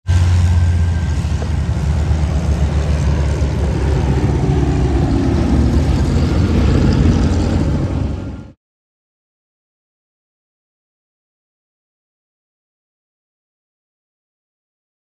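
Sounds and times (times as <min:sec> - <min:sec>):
propeller aircraft engine rumble: 0:00.0 - 0:08.6.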